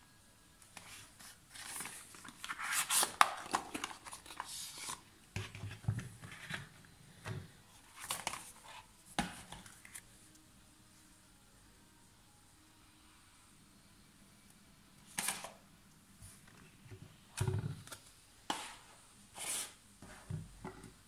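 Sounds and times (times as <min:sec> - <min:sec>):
cardboard and plastic rustling: 0:00.8 - 0:10.0.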